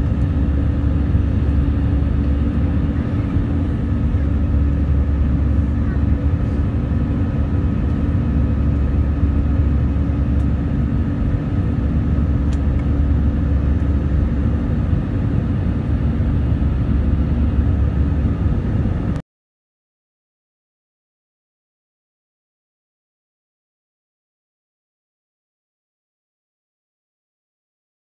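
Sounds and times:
constant cabin hum: 0:00.0 - 0:19.2
jet engines and airflow rumbling: 0:00.0 - 0:19.2.

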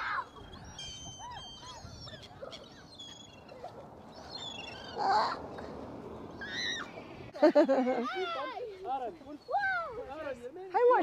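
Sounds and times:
gulls and geese calling: 0:00.0 - 0:07.0.

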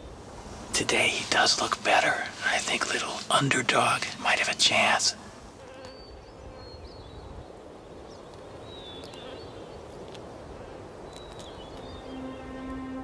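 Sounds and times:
low background noise: 0:00.0 - 0:13.0
faint high bird chirps: 0:11.1 - 0:12.8.

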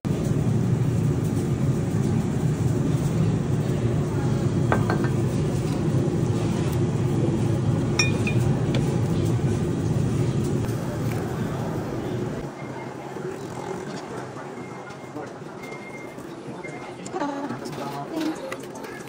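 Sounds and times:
crowd chatter: 0:01.8 - 0:06.6, 0:08.0 - 0:19.0
dishes and cutlery clinking: 0:08.0 - 0:08.5.

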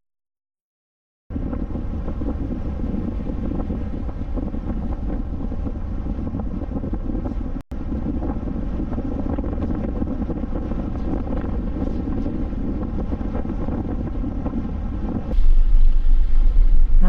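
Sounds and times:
wind buffeting microphone: 0:01.3 - 0:17.0.

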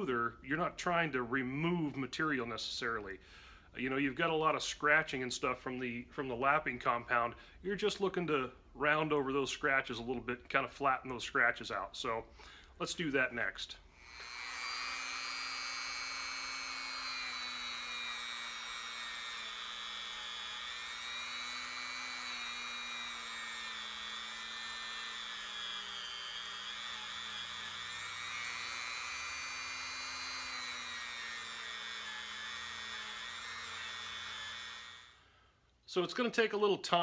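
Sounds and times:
rotary tool high whine: 0:14.0 - 0:35.3.

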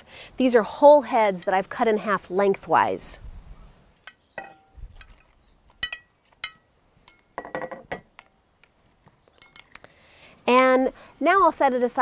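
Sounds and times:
clinks against glass bowl: 0:05.8 - 0:07.7.

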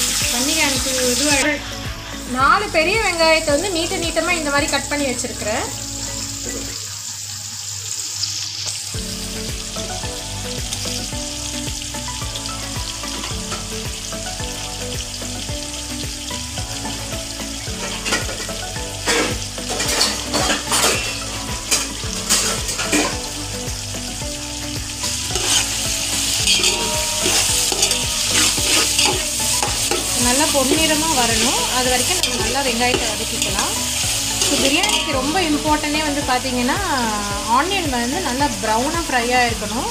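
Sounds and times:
onions sizzling in hot oil: 0:00.0 - 0:39.9
spatula scraping pot: 0:25.3 - 0:35.4.

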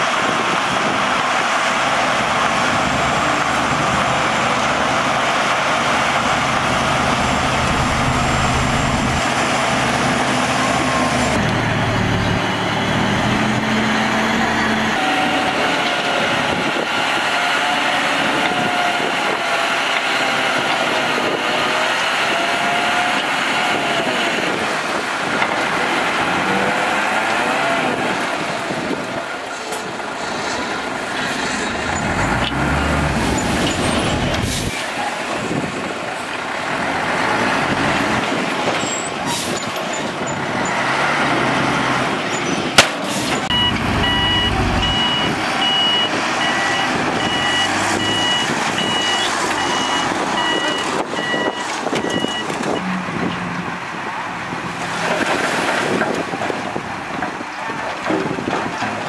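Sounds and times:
diesel truck engine running: 0:00.1 - 0:17.2, 0:27.8 - 0:59.0
dirt load dumping: 0:02.1 - 0:18.6, 0:25.3 - 0:36.0
reversing alarm beeping: 0:43.5 - 0:52.9.

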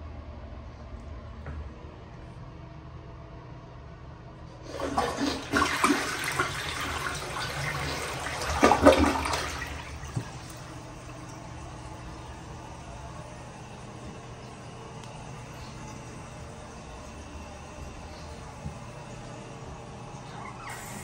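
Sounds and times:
toilet flushing: 0:04.6 - 0:21.0.

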